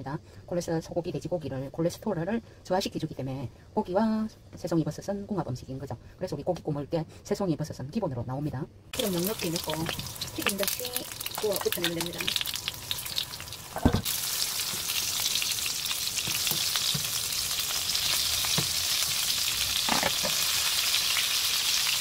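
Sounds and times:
mushrooms frying in oil: 0:08.9 - 0:22.0
thump: 0:13.8 - 0:14.1.

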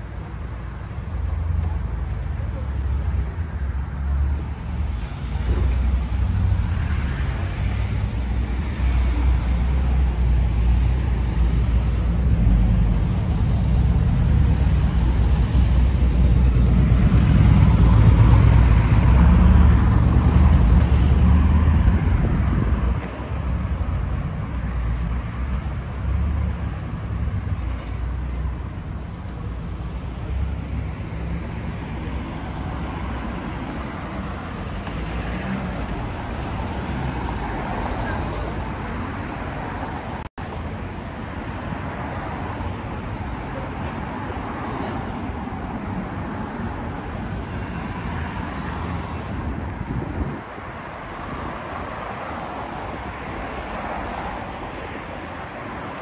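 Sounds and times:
vehicle passing with tyre noise: 0:02.6 - 0:28.6.

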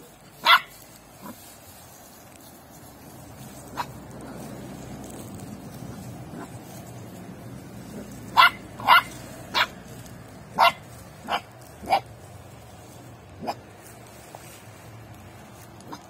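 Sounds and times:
puppy barking: 0:00.4 - 0:01.4, 0:03.7 - 0:04.0, 0:08.0 - 0:09.8, 0:10.5 - 0:12.1, 0:13.4 - 0:13.6.

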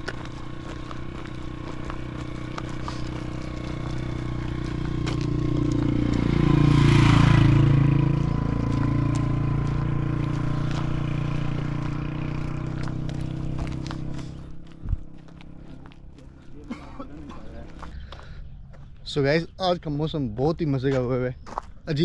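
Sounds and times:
vehicle engine passing by: 0:00.0 - 0:16.7.

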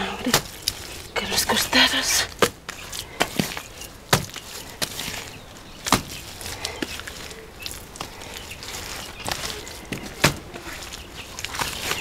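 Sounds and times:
squelching of wet mud: 0:00.0 - 0:12.0
hands slapping wet clay: 0:02.4 - 0:12.0.

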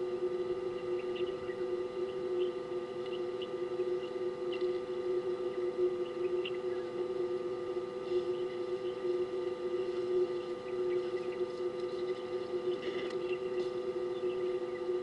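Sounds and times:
electrical hum: 0:00.0 - 0:15.0
faint high ticks: 0:00.8 - 0:07.1.

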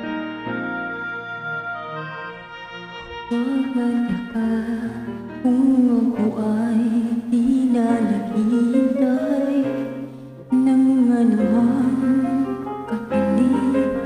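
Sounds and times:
karaoke backing track: 0:00.0 - 0:14.0
woman singing with vibrato: 0:03.3 - 0:14.0.

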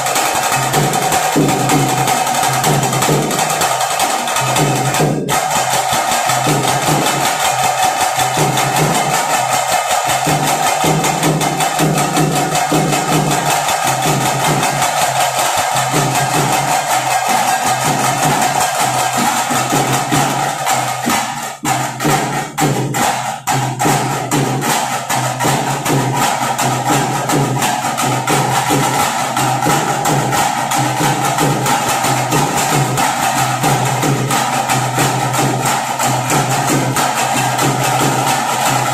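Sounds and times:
fast drum percussion music: 0:00.0 - 0:38.9.

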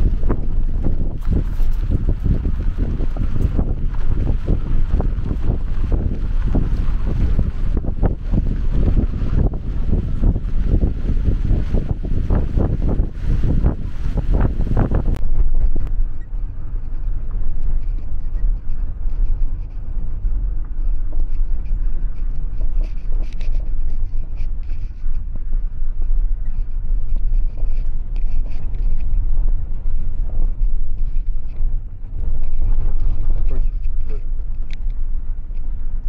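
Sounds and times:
vehicle interior rumble: 0:00.0 - 0:36.0.

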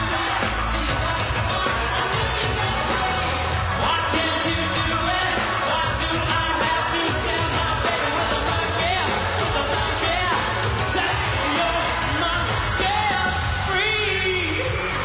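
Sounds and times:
band playing pop song: 0:00.0 - 0:15.0
person singing: 0:00.0 - 0:15.0.

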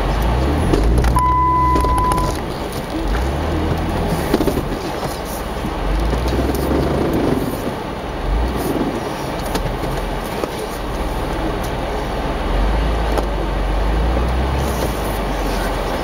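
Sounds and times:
vehicle engine droning: 0:00.0 - 0:16.0
knocks and clicks: 0:00.2 - 0:05.2.

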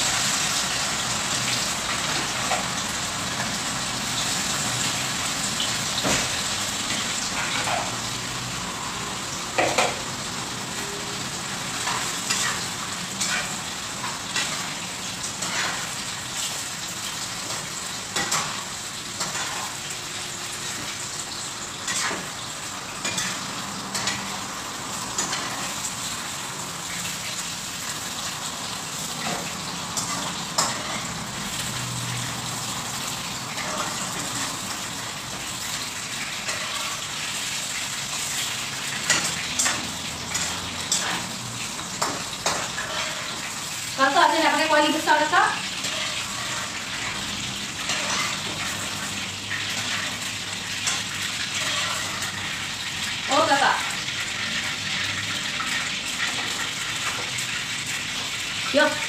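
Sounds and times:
food sizzling in a wok: 0:00.0 - 0:59.0
spatula scraping a pan: 0:11.8 - 0:16.6, 0:17.4 - 0:20.9, 0:21.7 - 0:24.4, 0:29.2 - 0:31.7, 0:36.1 - 0:58.3.

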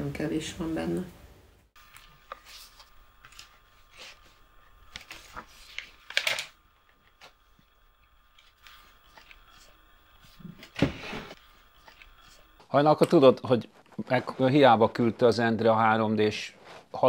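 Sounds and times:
newspaper rustling: 0:01.8 - 0:12.6.

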